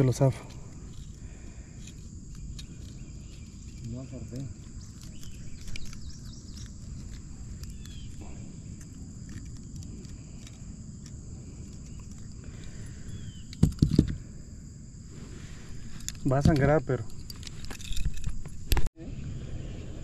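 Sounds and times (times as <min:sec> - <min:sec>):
high insect chirring: 0:00.0 - 0:18.8.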